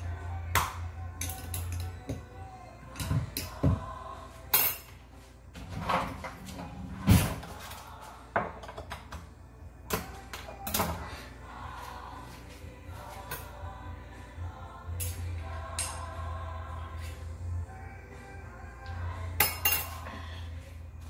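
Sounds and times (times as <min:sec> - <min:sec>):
faint background music: 0:00.0 - 0:21.0
kitchen items clattering on counter: 0:08.3 - 0:09.2.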